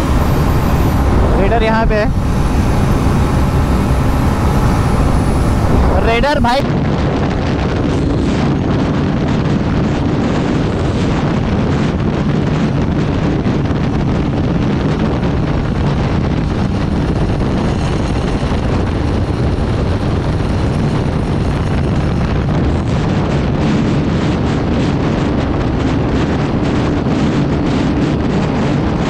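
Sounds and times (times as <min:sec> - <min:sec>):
motorcycle engine running: 0:00.0 - 0:06.6
wind buffeting microphone: 0:00.0 - 0:29.0.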